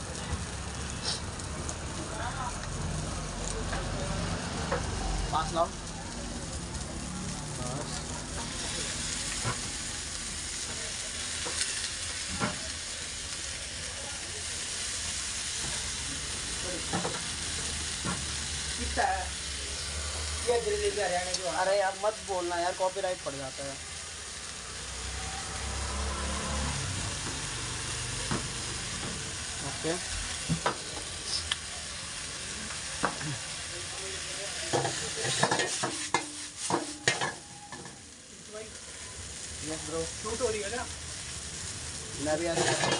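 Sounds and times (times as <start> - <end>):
noodles sizzling in a wok: 0.0 - 42.9
wok clanking and scraping: 7.8 - 12.8, 16.6 - 22.8, 25.0 - 31.7, 32.6 - 33.6, 34.4 - 38.2, 42.2 - 42.9.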